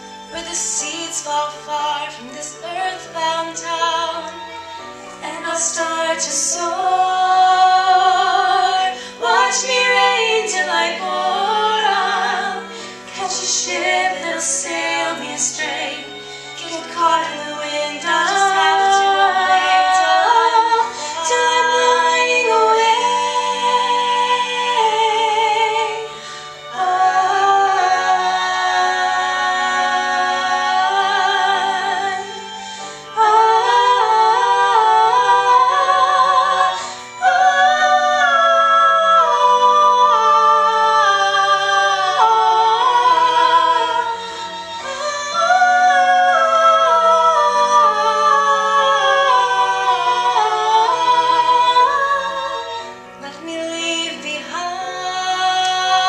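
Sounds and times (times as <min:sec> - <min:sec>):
women singing a ballad duet: 0:00.3 - 0:04.5, 0:05.2 - 0:56.0
singers breathing: 0:08.9 - 0:09.2, 0:12.6 - 0:13.1, 0:16.1 - 0:16.6, 0:20.8 - 0:21.2, 0:26.1 - 0:26.7, 0:32.4 - 0:33.2, 0:36.7 - 0:37.2.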